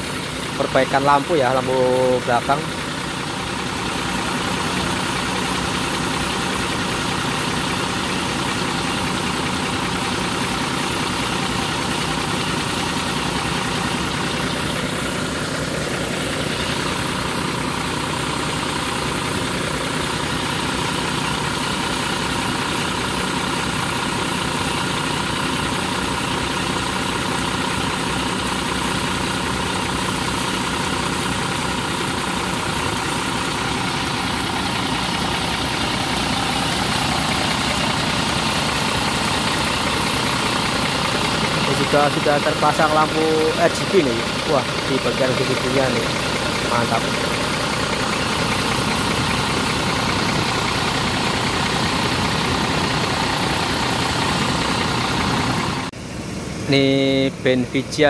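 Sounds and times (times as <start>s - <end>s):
diesel bus engine idling: 0.0s - 58.0s.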